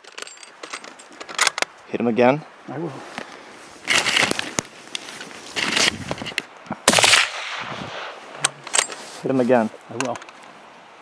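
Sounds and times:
rifle shot: 6.9 - 8.2.

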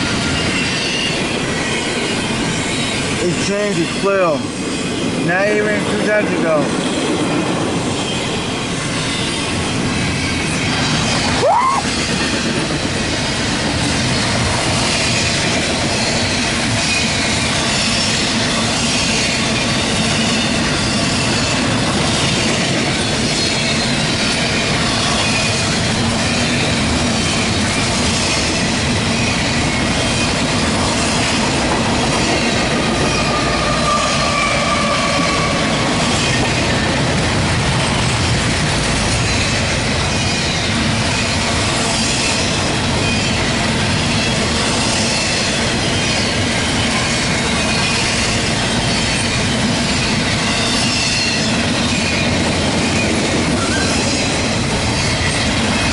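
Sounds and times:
high wheel squeal: 0.0 - 5.1, 32.0 - 36.5, 39.2 - 55.9
freight train wheels on rail: 0.0 - 55.9.

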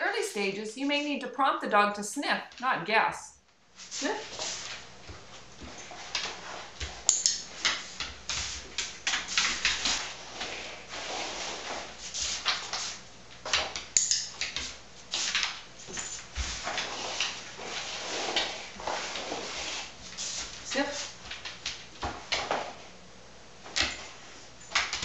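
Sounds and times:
cardboard scraping on vinyl floor: 3.8 - 7.0, 7.6 - 13.0, 15.1 - 21.2
sharp clicks: 14.0 - 14.6.

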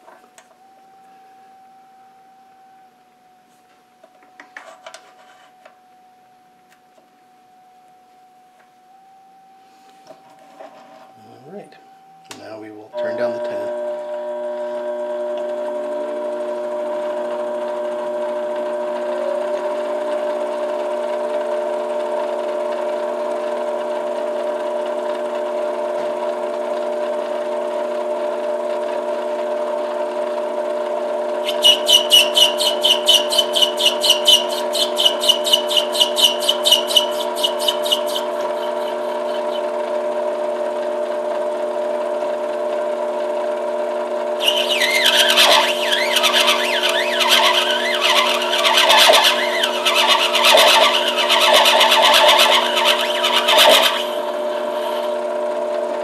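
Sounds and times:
lathe motor whine: 0.0 - 5.8, 8.0 - 56.0
tool scraping acrylic pulsing: 31.4 - 39.7, 44.4 - 55.2.

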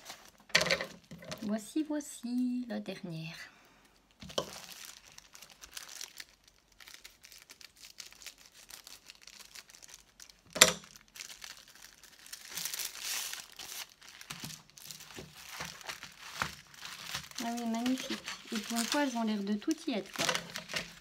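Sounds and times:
plastic packaging crinkling: 0.0 - 1.6, 3.8 - 21.0
scissors cutting plastic: 4.2 - 4.7, 13.7 - 21.0.

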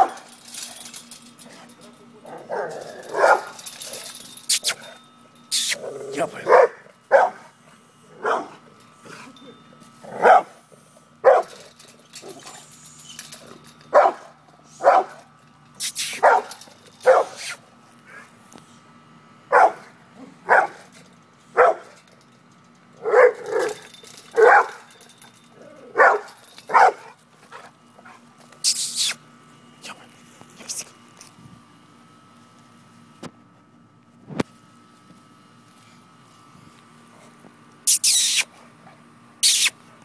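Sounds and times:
dog barking: 2.5 - 3.6, 6.4 - 7.5, 8.2 - 8.6, 10.2 - 10.5, 11.2 - 11.6, 14.0 - 15.2, 16.2 - 17.4, 19.5 - 19.9, 20.5 - 20.8, 21.6 - 21.9, 23.0 - 23.8, 24.4 - 24.8, 26.0 - 27.2.

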